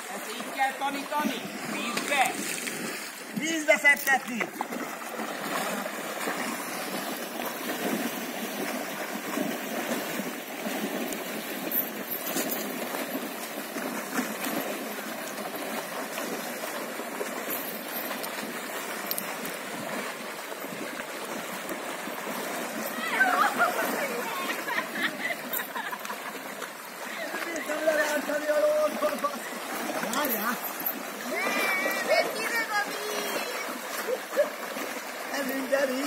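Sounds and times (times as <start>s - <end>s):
horses wading through water: 0.0s - 36.0s.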